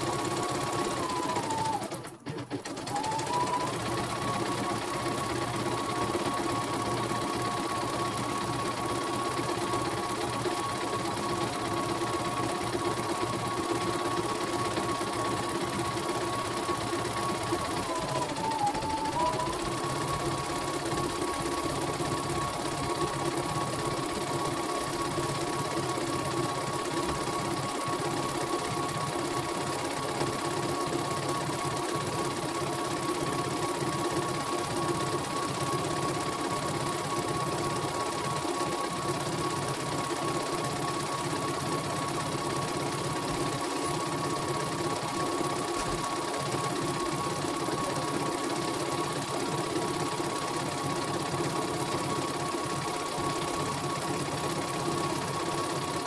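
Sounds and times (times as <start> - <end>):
embroidery machine whining: 0.6 - 2.1, 17.4 - 20.7.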